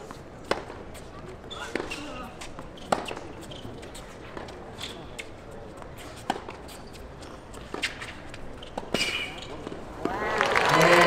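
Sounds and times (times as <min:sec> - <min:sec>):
shoe squeaks: 0:01.4 - 0:09.8.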